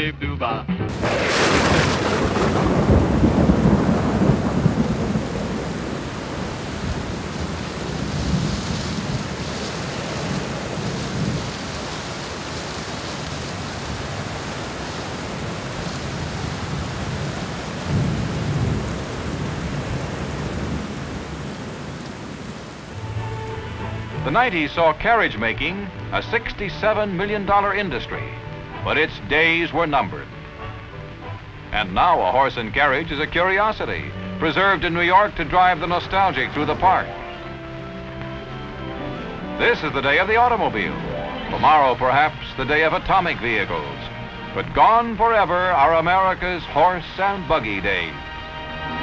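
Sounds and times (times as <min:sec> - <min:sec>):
low rumbling thunder: 0:00.9 - 0:24.6
thunderclap: 0:00.9 - 0:25.0
steady rain: 0:00.9 - 0:49.0.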